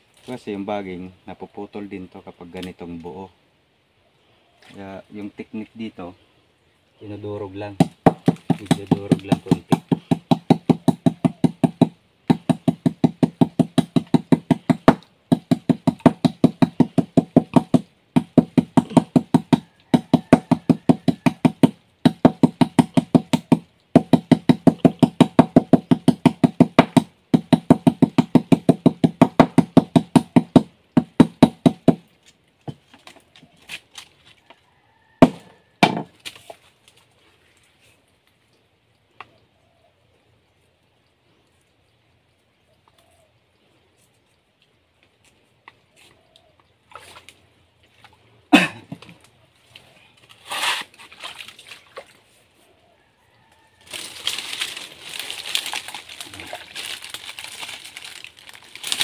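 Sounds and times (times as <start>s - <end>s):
vine pounding on wooden log: 7.6s - 33.2s, 35.2s - 36.5s.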